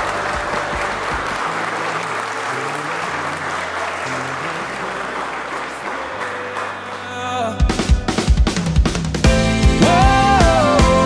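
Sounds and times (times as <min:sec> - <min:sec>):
crowd applauding: 0:00.0 - 0:08.4.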